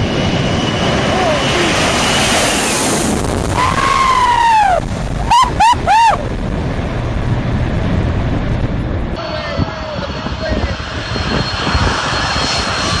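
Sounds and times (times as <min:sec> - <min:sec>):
jet engine roar: 0:00.0 - 0:13.0
wind rushing: 0:00.0 - 0:13.0
person whooping: 0:03.6 - 0:06.3.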